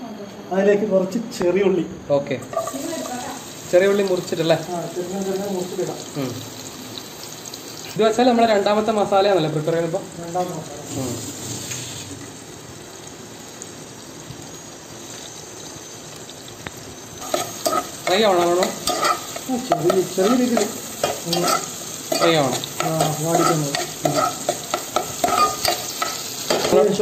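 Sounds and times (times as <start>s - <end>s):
onions sizzling in oil: 2.3s - 27.0s
metal spoon scraping pot: 17.2s - 26.8s.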